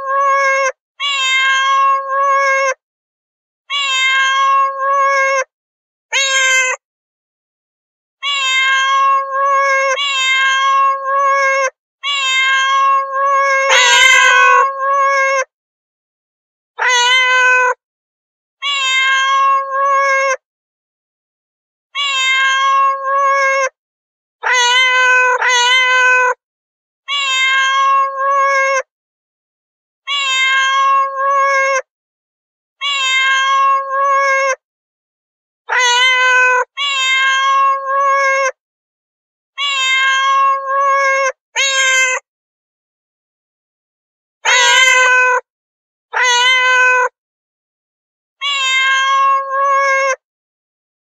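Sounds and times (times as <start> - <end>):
cat meowing: 0.0 - 2.8, 3.7 - 5.5, 6.1 - 6.8, 8.2 - 15.5, 16.8 - 17.8, 18.6 - 20.4, 22.0 - 23.8, 24.4 - 26.4, 27.1 - 28.9, 30.0 - 31.9, 32.8 - 34.6, 35.7 - 38.6, 39.6 - 42.3, 44.4 - 45.5, 46.1 - 47.2, 48.4 - 50.2.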